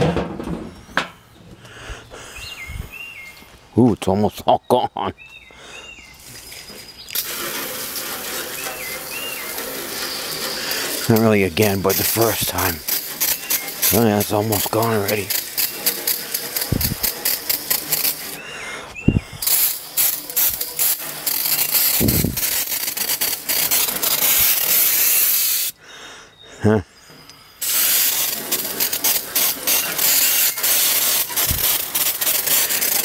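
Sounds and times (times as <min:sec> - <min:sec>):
aerosol can spraying: 0:07.1 - 0:18.4, 0:19.4 - 0:25.8, 0:27.6 - 0:33.0.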